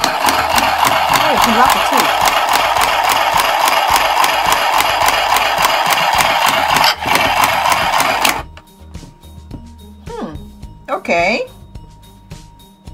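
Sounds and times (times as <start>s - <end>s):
sewing machine running: 0.0s - 8.5s.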